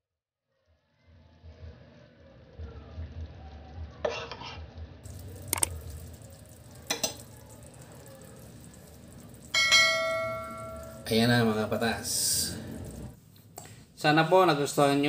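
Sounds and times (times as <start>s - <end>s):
gravy pouring: 5.0s - 13.2s.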